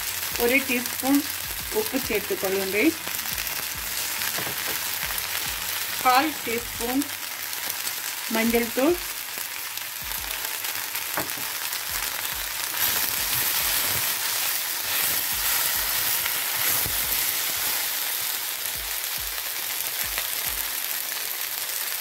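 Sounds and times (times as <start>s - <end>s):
vegetables sizzling in oil: 0.0s - 22.0s.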